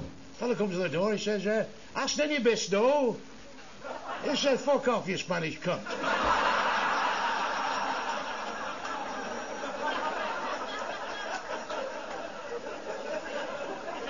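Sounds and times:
audience laughing: 0:03.8 - 0:04.4, 0:05.9 - 0:14.0.

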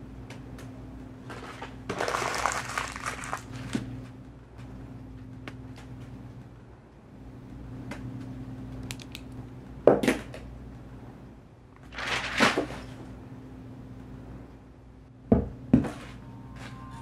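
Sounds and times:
low steady hum: 0:00.0 - 0:17.0
notebook pages fluttering and landing: 0:01.4 - 0:03.9.

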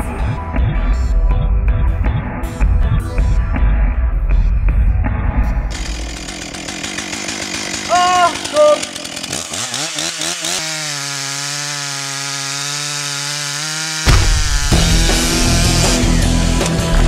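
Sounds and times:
loud deep sound with music: 0:00.0 - 0:05.8, 0:14.1 - 0:17.0
chainsaw revving and cutting: 0:05.7 - 0:17.0.

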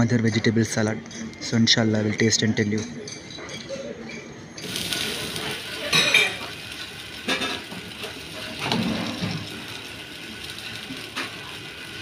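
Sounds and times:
steady background noise: 0:00.0 - 0:12.0
metal spatula scraping griddle: 0:08.4 - 0:09.5.

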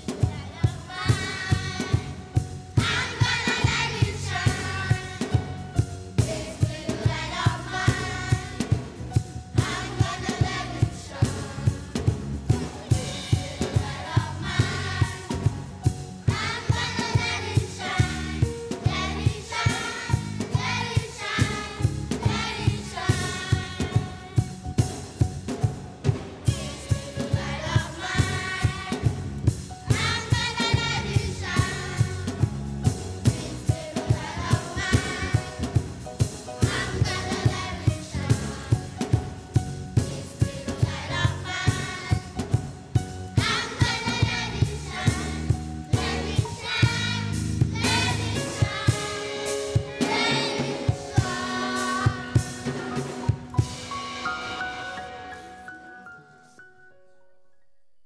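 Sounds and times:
children's choir singing: 0:00.0 - 0:05.6, 0:06.2 - 0:24.6, 0:26.4 - 0:29.2, 0:29.8 - 0:32.4, 0:33.2 - 0:35.9, 0:36.6 - 0:39.3, 0:40.0 - 0:42.6, 0:43.3 - 0:56.6
steady drum beat: 0:00.0 - 0:54.3.

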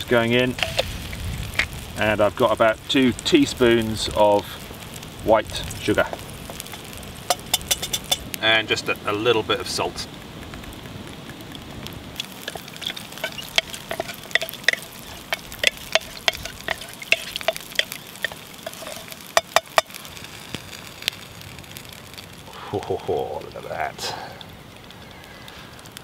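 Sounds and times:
spoon knocking with metallic ring: 0:07.3 - 0:08.2
spoon scraping a metal mug: 0:07.3 - 0:08.3, 0:12.4 - 0:19.9.

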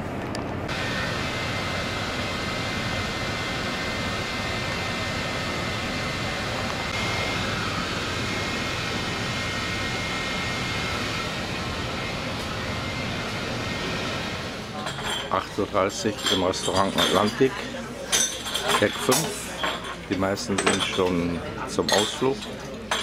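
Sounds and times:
ship machinery and ventilation drone: 0:00.0 - 0:23.0
faint high whine: 0:00.7 - 0:15.7.

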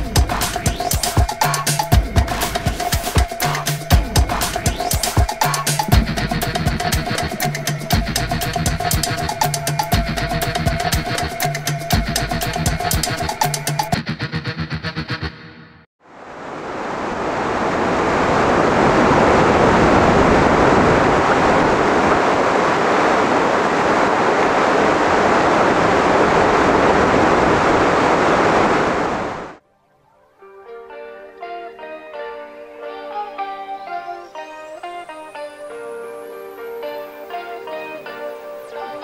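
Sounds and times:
pulsing guitar music: 0:00.0 - 0:15.4, 0:30.4 - 0:39.0
water rushing from culverts: 0:16.2 - 0:29.6.

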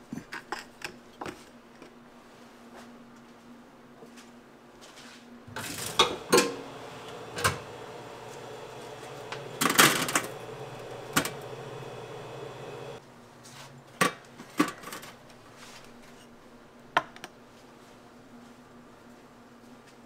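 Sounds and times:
machine hum: 0:05.5 - 0:13.0
utensils clattering and knocking: 0:05.5 - 0:13.0.

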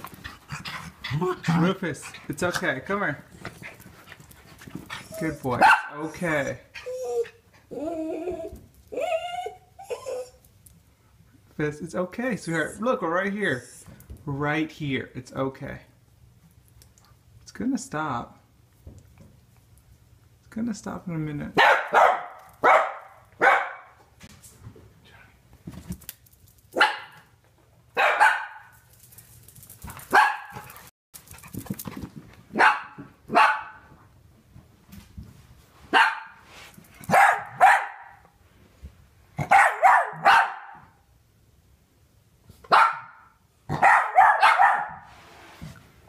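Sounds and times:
dog barking: 0:05.6 - 0:06.0, 0:21.6 - 0:24.0, 0:26.8 - 0:27.2, 0:28.0 - 0:28.7, 0:30.1 - 0:30.7, 0:32.6 - 0:33.8, 0:35.9 - 0:36.4, 0:37.1 - 0:38.2, 0:39.4 - 0:40.9, 0:42.7 - 0:45.1.

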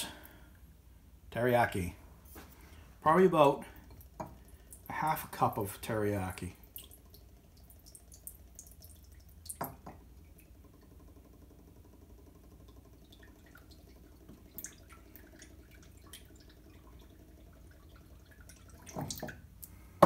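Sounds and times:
sauce dripping into a bowl: 0:06.6 - 0:19.8.

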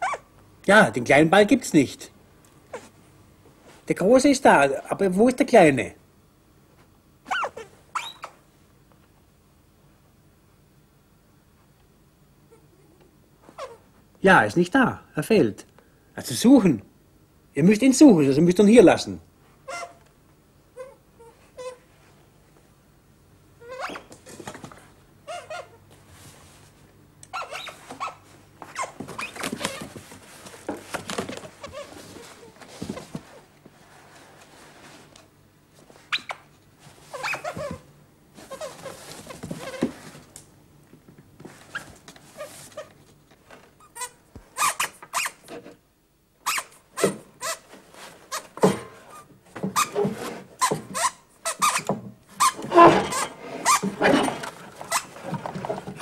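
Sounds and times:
squeaky puppet vocalising: 0:00.0 - 0:00.3, 0:07.3 - 0:08.4, 0:13.6 - 0:13.8, 0:19.7 - 0:20.0, 0:23.6 - 0:24.1, 0:25.3 - 0:25.8, 0:27.3 - 0:28.2
sharp knocks and rustles: 0:47.0 - 0:56.0.

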